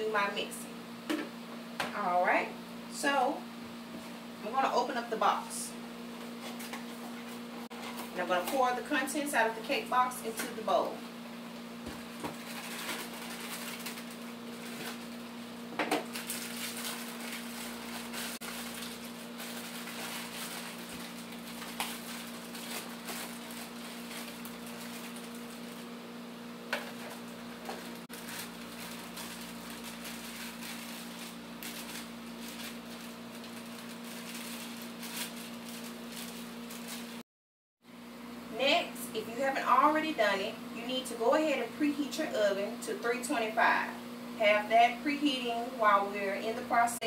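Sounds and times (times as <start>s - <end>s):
plastic bag tearing and crinkling: 12.1s - 15.2s, 16.0s - 25.9s, 26.9s - 37.2s.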